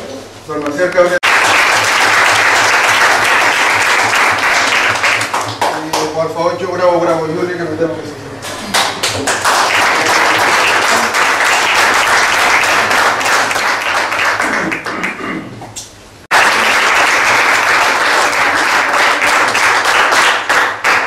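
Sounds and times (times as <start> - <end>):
people clapping: 0.9 - 6.3, 8.5 - 15.2, 16.3 - 21.0.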